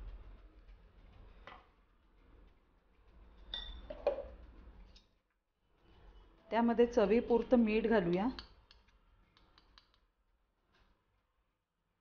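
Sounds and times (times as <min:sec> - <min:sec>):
spoon clinking glass bowl: 0:03.5 - 0:04.4.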